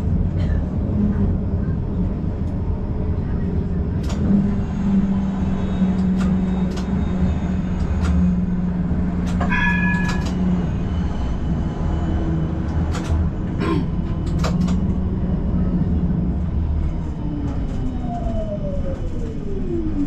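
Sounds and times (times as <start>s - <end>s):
tram drone on rails: 0.0s - 20.0s
track clicks and knocks: 9.2s - 10.8s, 12.5s - 15.1s
high ringing tone: 9.5s - 12.4s.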